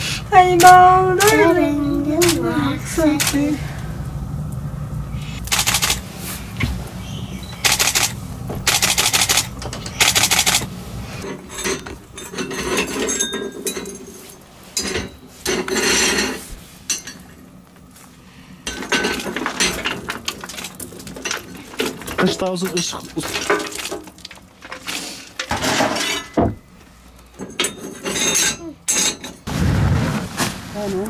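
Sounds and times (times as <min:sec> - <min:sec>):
loud noisy bursts: 0:00.0 - 0:11.2
metal clinking and clanking: 0:07.4 - 0:17.4, 0:18.6 - 0:29.5.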